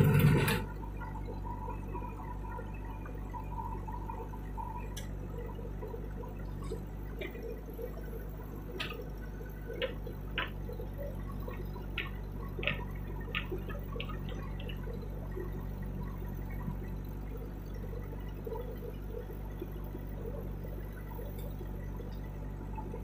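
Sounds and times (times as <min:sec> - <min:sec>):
diesel engine running: 0:00.0 - 0:23.0
sharp clicks and knocks: 0:08.7 - 0:15.0.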